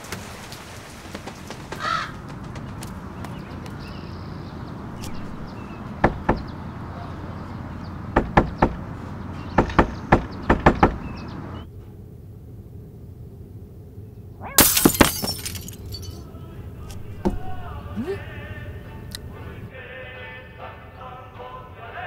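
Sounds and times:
cat knocking on wooden door: 6.0 - 6.5, 8.2 - 8.8, 9.6 - 11.0.

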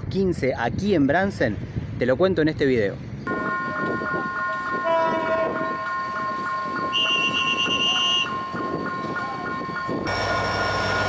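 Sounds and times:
diesel locomotive rumbling: 2.9 - 11.0
locomotive horn: 3.3 - 9.1
level crossing warning bell: 3.3 - 11.0.

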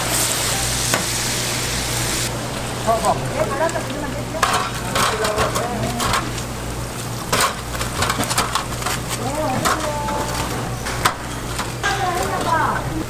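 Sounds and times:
faint frying sizzle: 0.0 - 13.0
metal utensils knocking pans: 4.4 - 6.4, 7.3 - 13.0.

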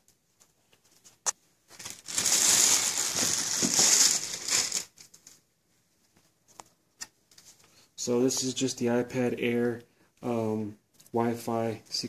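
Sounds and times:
plastic bag crinkling: 1.7 - 5.4.

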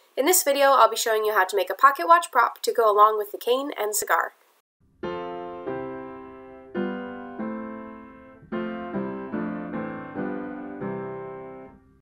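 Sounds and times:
piano chords: 4.8 - 12.0.

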